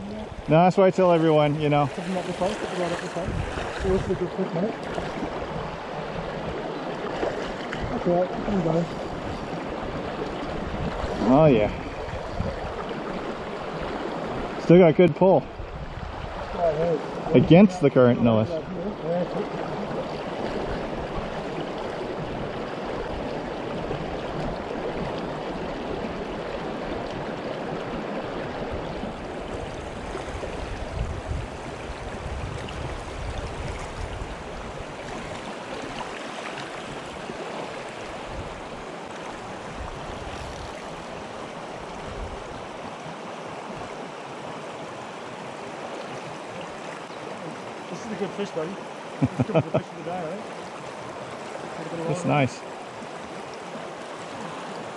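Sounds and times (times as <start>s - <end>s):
stream running over rocks: 0.0s - 54.9s.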